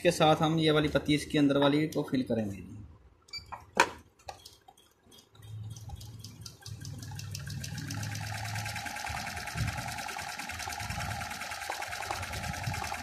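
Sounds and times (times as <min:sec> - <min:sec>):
sewing machine stitching: 0:04.3 - 0:13.0.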